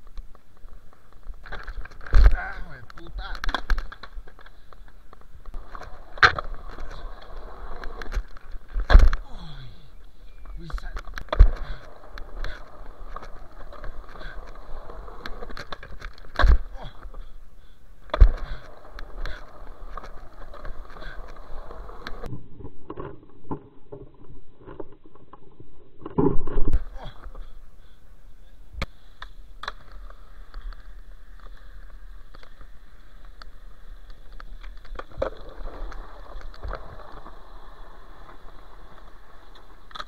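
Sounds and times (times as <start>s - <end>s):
skateboard wheels rolling on concrete: 0.0s - 40.0s
skateboard clacking on ground: 18.1s - 22.3s.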